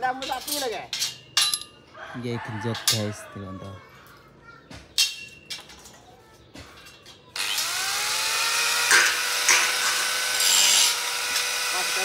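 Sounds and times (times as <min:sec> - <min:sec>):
metal clinks: 0:00.1 - 0:01.8
angle grinder cutting steel: 0:07.4 - 0:12.0.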